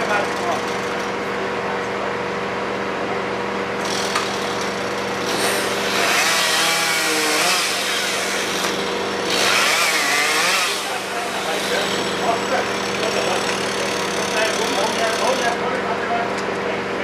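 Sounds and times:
chainsaw cutting branches: 3.8s - 15.5s.

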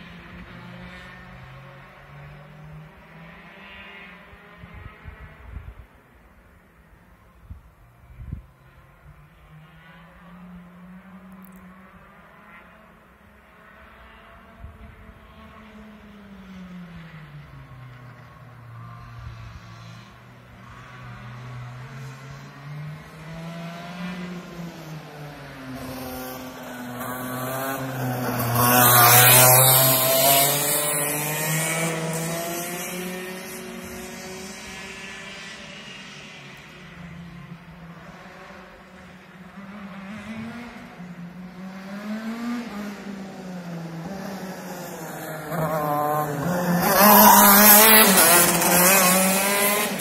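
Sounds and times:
kart engines buzzing: 14.8s - 50.0s.

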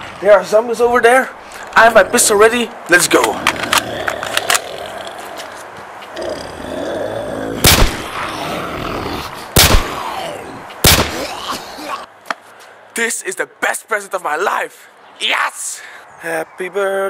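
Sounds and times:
pistol gunshots with echoing tail: 7.6s - 8.0s, 9.6s - 9.9s, 10.8s - 11.3s.

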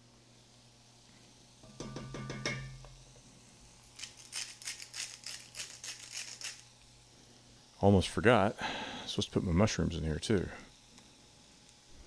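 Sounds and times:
salt grinder clicking: 4.0s - 6.6s.

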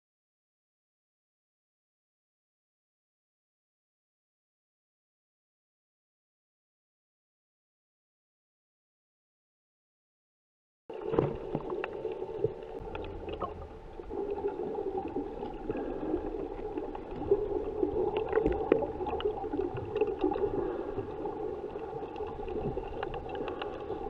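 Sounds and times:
muffled underwater rush: 10.9s - 24.0s.

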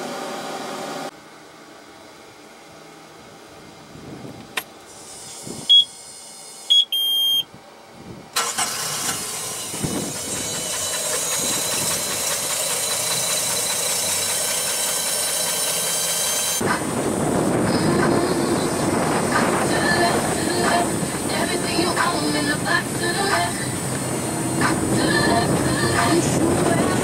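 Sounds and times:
dashboard warning beeps: 5.6s - 6.0s, 6.7s - 7.5s
boat engine running: 9.7s - 27.0s.

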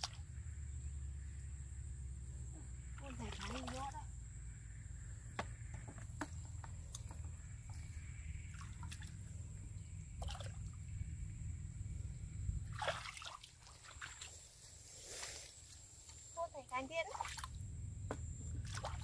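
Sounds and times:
small splashes: 0.0s - 0.2s, 3.0s - 4.1s, 8.4s - 9.4s, 10.2s - 10.8s, 12.6s - 14.4s, 16.9s - 17.6s, 18.6s - 19.0s
muddy water sloshing and dripping: 0.0s - 0.4s, 2.8s - 4.1s, 5.5s - 11.0s, 12.6s - 15.8s, 16.7s - 17.7s, 18.4s - 19.0s.

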